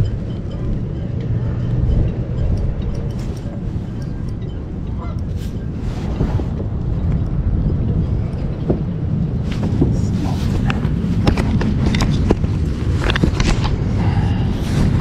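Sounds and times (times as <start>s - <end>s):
wind buffeting microphone: 0.0s - 15.0s
sharp irregular clicks and knocks: 10.7s - 13.8s.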